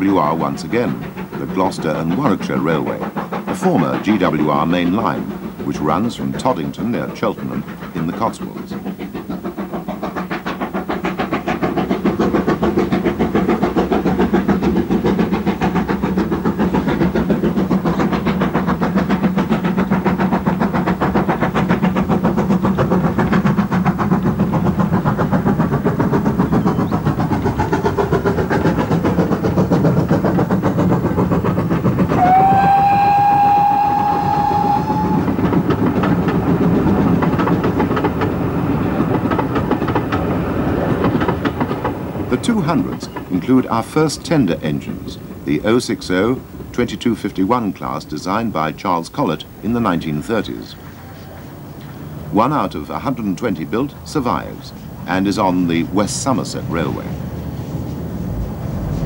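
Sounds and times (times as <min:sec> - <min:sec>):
steam locomotive exhaust beats: 0:00.0 - 0:59.0
steam whistle: 0:32.2 - 0:35.3.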